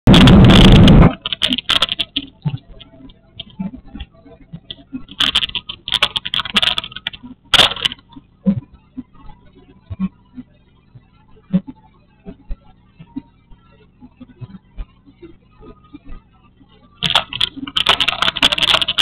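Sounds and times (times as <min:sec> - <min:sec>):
loud distorted rush of noise: 0:00.0 - 0:02.8, 0:17.0 - 0:19.0
camera handling clicks and rattles: 0:00.1 - 0:02.2, 0:05.1 - 0:08.0, 0:17.0 - 0:19.0.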